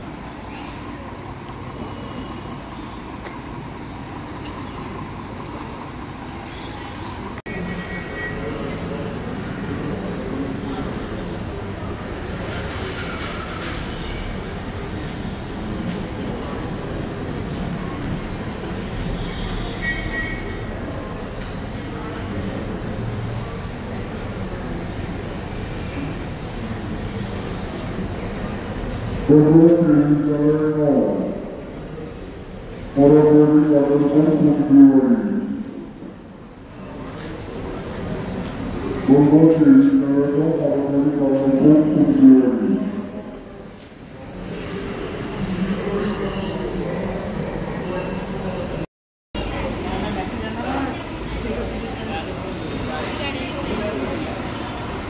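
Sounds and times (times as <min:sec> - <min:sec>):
steady background hum: 0:00.0 - 0:19.2
bus engine rumble: 0:00.0 - 0:19.8, 0:49.4 - 0:55.0
bus engines rumbling: 0:00.0 - 0:55.0
road traffic: 0:00.0 - 0:55.0.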